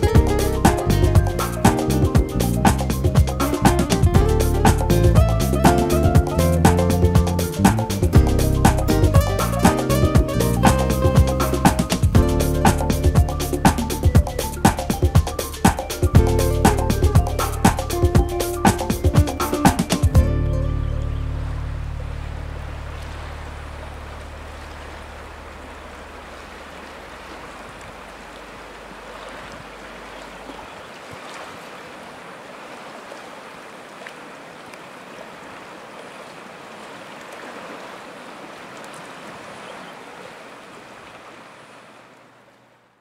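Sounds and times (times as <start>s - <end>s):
running water rushing: 0.0s - 42.9s
small water splashes: 21.1s - 42.7s.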